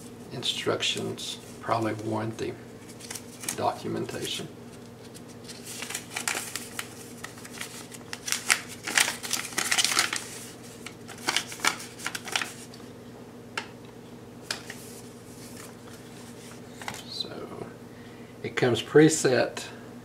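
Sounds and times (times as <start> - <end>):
paper leaflet rustling: 2.8 - 12.8, 14.5 - 17.1.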